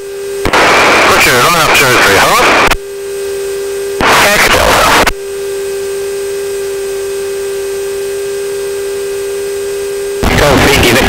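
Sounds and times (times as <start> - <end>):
steady electrical hum with tones: 0.0 - 11.0
garbled radio transmission: 0.5 - 2.8, 4.0 - 5.1, 10.2 - 11.0.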